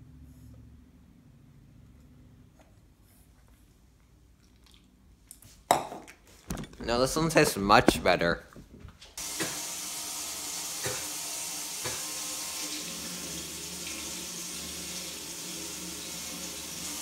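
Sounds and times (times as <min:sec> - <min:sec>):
faucet running into a sink: 0:09.2 - 0:17.0.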